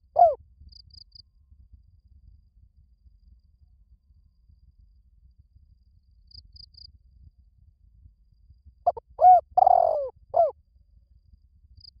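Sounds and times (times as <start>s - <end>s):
dove cooing: 0.0s - 0.4s, 8.9s - 10.5s.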